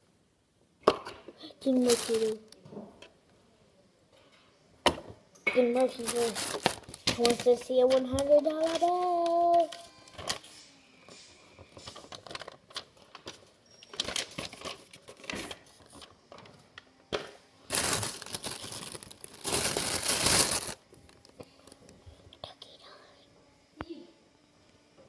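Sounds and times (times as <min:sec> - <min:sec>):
paper banknote crinkling: 0:17.7 - 0:20.8.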